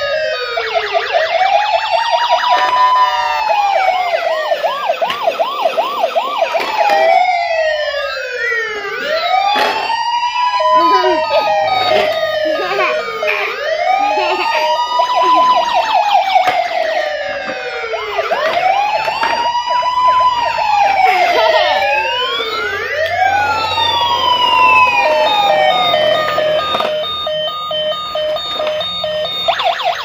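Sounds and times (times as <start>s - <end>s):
toy electronic siren wailing: 0.0s - 30.0s
fast electronic beeping: 23.4s - 30.0s.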